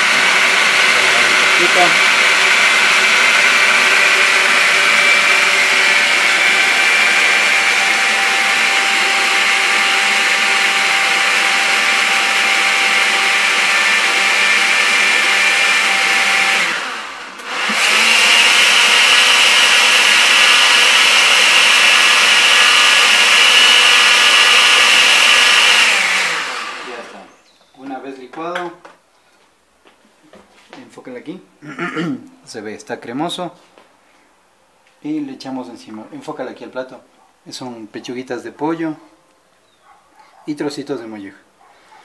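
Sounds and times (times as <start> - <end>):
blender running: 0.0 - 27.3.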